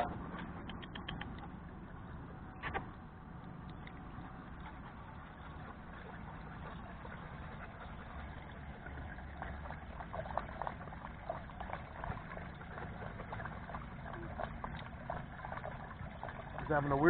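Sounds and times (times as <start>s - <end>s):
dog lapping water: 0.0s - 17.0s.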